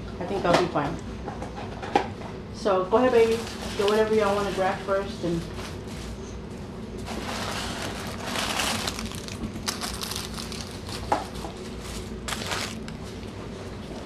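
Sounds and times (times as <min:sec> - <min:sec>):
paper wrappers crinkling: 0:07.1 - 0:14.0.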